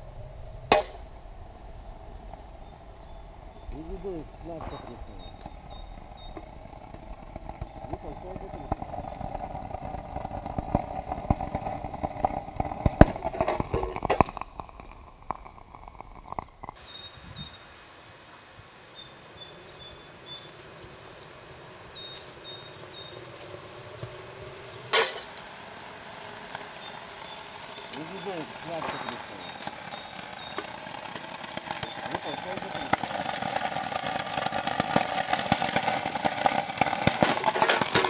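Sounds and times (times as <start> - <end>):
steady hiss: 0.0 - 38.0
crackling and sharp pops: 0.6 - 1.2, 2.2 - 17.0, 19.6 - 38.0
sharp crack: 0.6 - 1.2, 3.6 - 16.8, 24.8 - 38.0
faint high chirps: 2.6 - 6.8.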